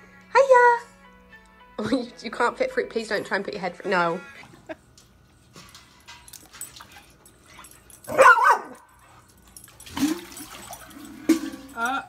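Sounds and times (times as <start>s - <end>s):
dog wavering bark: 8.1s - 8.8s.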